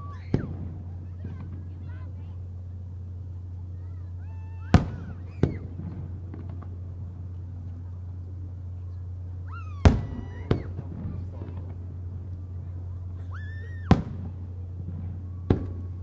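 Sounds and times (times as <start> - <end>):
firework shells booming: 0.0 - 1.9, 4.7 - 7.8, 9.7 - 13.0, 13.7 - 16.0
steady low hum: 0.0 - 16.0.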